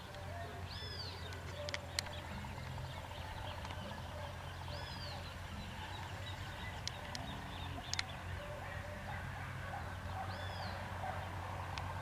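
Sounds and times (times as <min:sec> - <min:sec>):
birds whistling: 0:00.1 - 0:11.6
sharp clicks: 0:01.2 - 0:02.7, 0:06.8 - 0:08.2.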